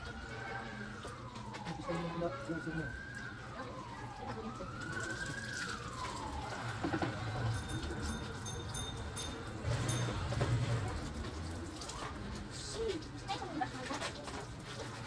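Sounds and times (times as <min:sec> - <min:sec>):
wailing siren: 0:00.0 - 0:10.4.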